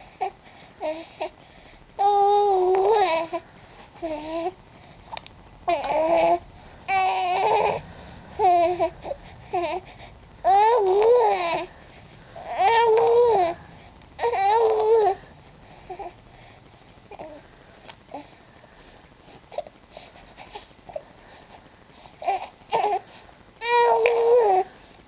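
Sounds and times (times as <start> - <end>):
infant cooing and babbling: 0.0 - 1.3, 2.0 - 3.4, 4.0 - 4.6, 5.7 - 7.8, 8.4 - 11.7, 12.4 - 13.6, 14.2 - 16.2, 17.1 - 17.4, 22.2 - 23.0, 23.6 - 24.7.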